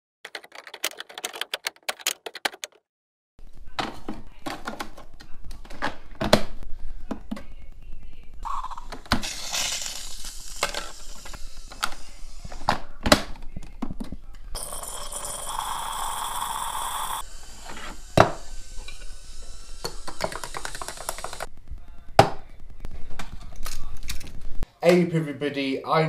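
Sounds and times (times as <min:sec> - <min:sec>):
coffee machine hissing: 0:08.4 - 0:12.7, 0:14.6 - 0:21.5.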